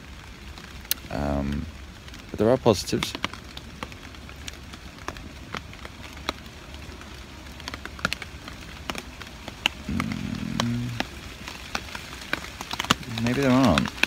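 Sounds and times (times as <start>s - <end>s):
rain tapping on tarpaulin: 0.0s - 14.0s
soft rain hiss: 0.0s - 14.0s
person humming: 9.9s - 11.1s.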